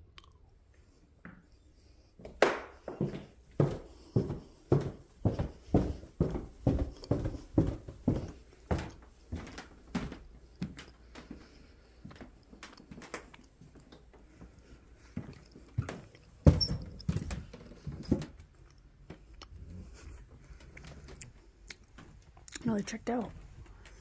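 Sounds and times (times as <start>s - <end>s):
footsteps on wooden floorboards: 2.2s - 11.4s, 15.1s - 18.4s.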